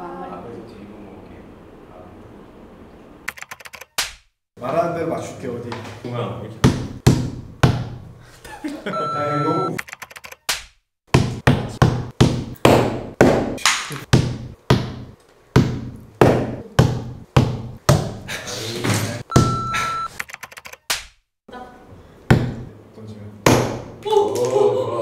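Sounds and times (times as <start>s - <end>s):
short steady beep: 9.0s - 9.8s, 19.3s - 20.1s.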